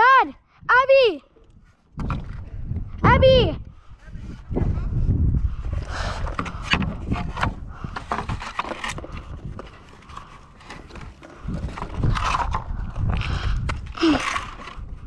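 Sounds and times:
wooden plank knocking and scraping: 6.2s - 12.6s.

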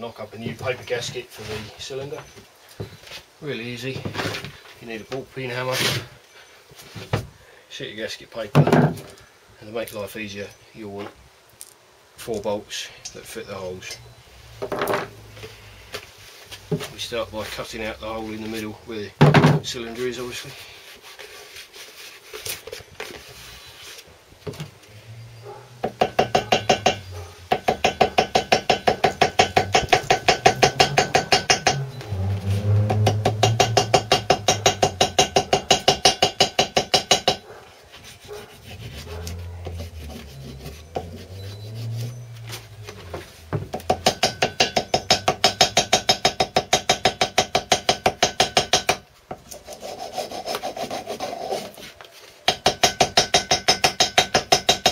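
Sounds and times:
hammer tapping on metal: 25.8s - 31.9s, 32.9s - 37.4s, 43.6s - 49.0s, 52.5s - 54.9s.

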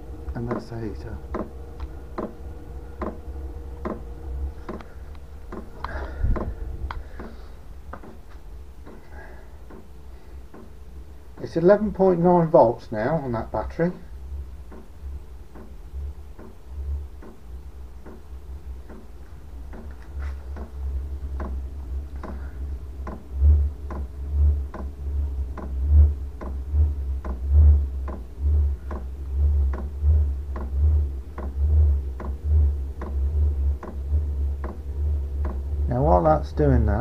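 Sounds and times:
low rumble: 0.0s - 10.2s, 10.8s - 37.0s
fuel pump ticking: 3.0s - 3.2s, 22.2s - 24.1s, 27.2s - 29.1s, 29.7s - 29.9s, 32.2s - 32.4s, 34.6s - 34.8s, 35.4s - 35.6s.

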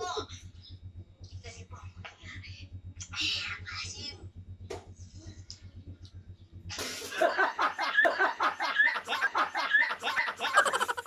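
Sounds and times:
low hum: 0.0s - 11.0s
people laughing and shrieking: 7.1s - 11.0s.

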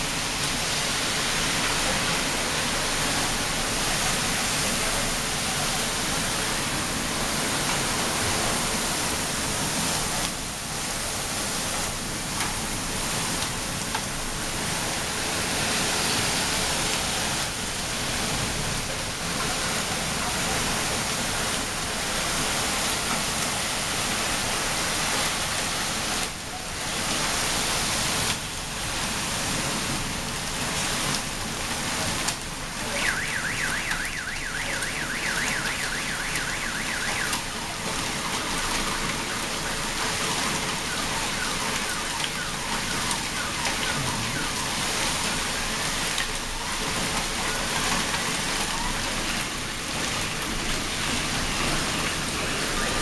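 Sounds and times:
heavy rain and hail: 0.0s - 53.0s
car alarm warbling: 32.9s - 46.0s.

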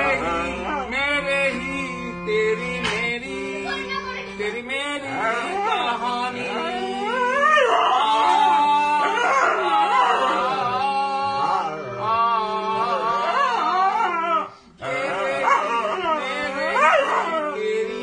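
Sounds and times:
harmonium drone: 0.0s - 18.0s
man singing: 0.0s - 18.0s
dog howling and yipping: 7.1s - 8.4s, 9.0s - 10.6s, 15.4s - 17.6s.

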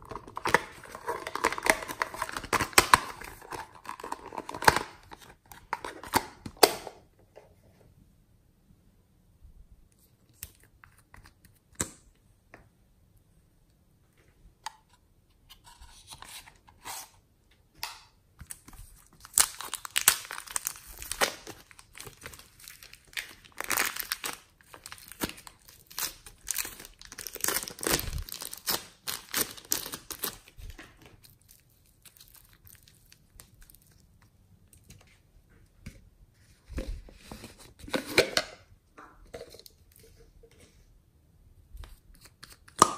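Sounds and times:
plastic wrapper crinkling and tearing: 0.0s - 6.6s, 18.4s - 35.0s.

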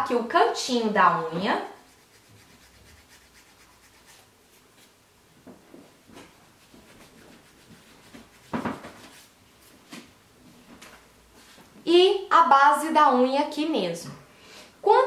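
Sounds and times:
nail file scratching fingernail: 1.9s - 4.2s, 6.8s - 8.5s.

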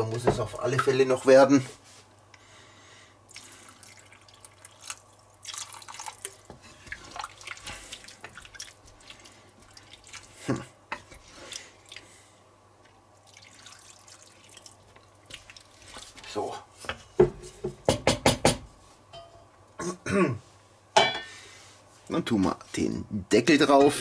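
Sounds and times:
water pouring and splashing: 3.3s - 10.6s, 13.2s - 16.5s
wooden spoon stirring stew: 6.1s - 12.1s, 14.8s - 18.0s.

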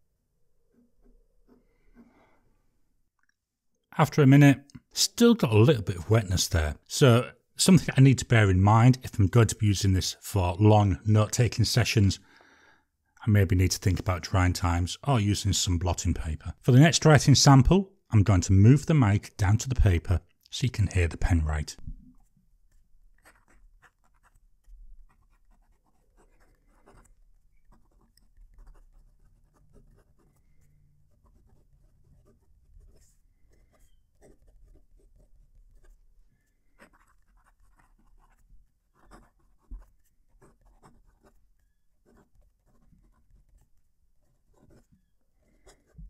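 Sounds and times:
fountain pen scratching on paper: 22.1s - 46.0s.

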